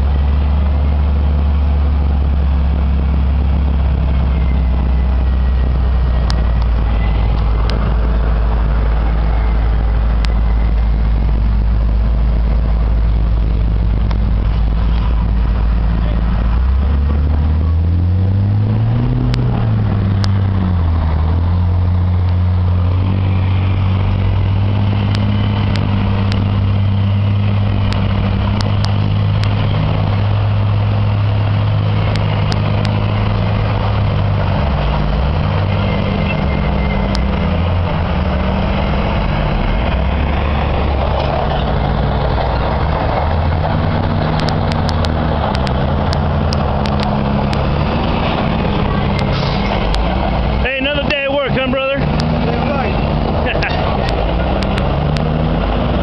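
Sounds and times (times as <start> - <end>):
heavy diesel engine running: 0.0 - 56.0
sharp clicks: 44.0 - 48.0, 54.0 - 55.3.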